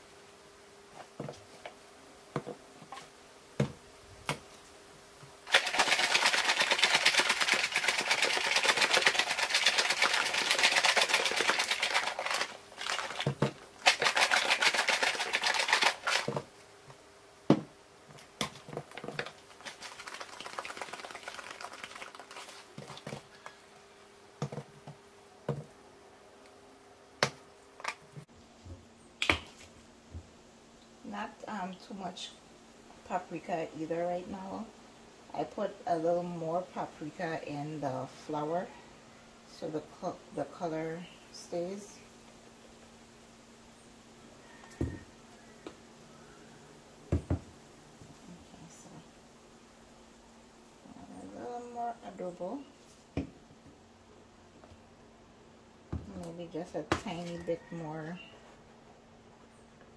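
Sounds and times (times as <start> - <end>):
spice container rattling: 5.5 - 16.4, 18.9 - 23.2
containers clicking and tapping: 18.4 - 23.3.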